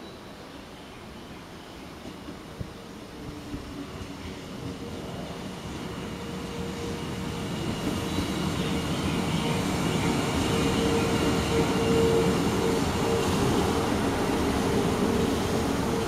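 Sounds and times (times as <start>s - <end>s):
train whine: 1.8s - 16.0s
train wheels rumbling on rails: 1.9s - 16.0s.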